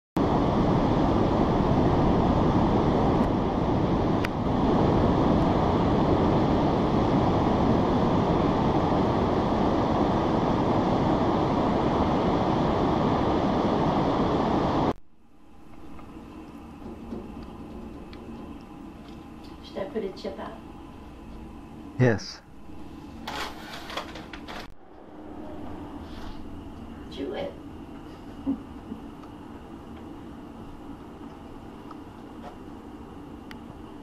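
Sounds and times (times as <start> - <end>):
wind on microphone: 0.2 - 14.9
ocean surf: 24.7 - 27.9.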